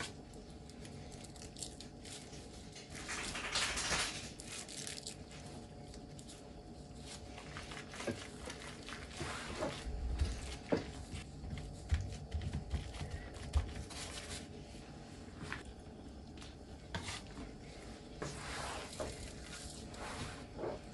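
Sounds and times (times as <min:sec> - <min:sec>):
cabbage leaf crinkling and rustling: 0:00.0 - 0:10.6.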